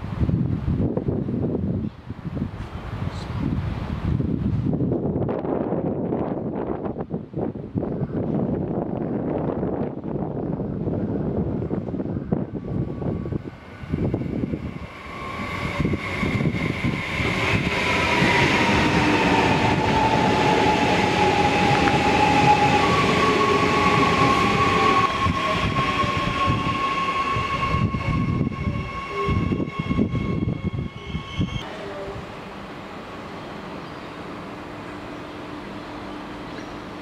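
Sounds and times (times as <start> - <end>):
train wheels on rails: 11.6 - 32.1.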